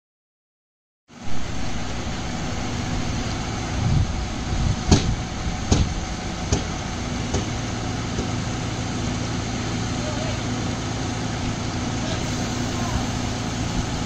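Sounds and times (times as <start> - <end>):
drilling rig humming: 1.1 - 14.0
sharp knocks: 4.9 - 8.4.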